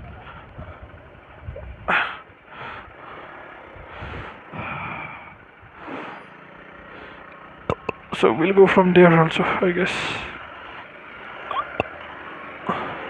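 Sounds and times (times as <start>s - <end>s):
faint low rumble: 0.0s - 10.9s
person breathing heavily: 1.9s - 7.4s, 12.6s - 13.0s.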